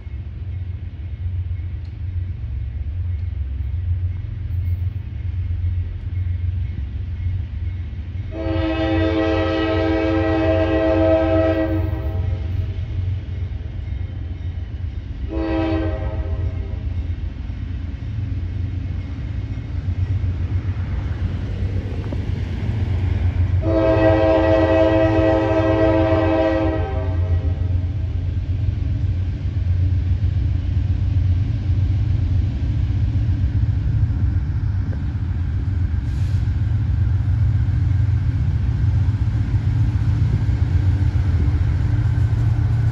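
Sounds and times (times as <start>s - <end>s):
train rumbling: 0.0s - 42.9s
locomotive air horn: 8.3s - 12.8s, 15.3s - 16.8s, 23.6s - 27.9s.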